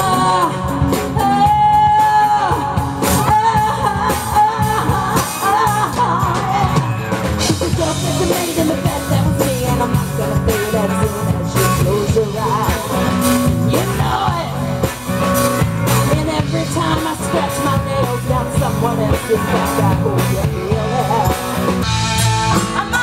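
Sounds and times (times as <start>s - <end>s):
person singing: 0.0s - 15.1s, 15.9s - 23.0s
drum kit: 0.0s - 23.0s
electric bass: 0.0s - 23.0s
electric guitar: 0.0s - 23.0s.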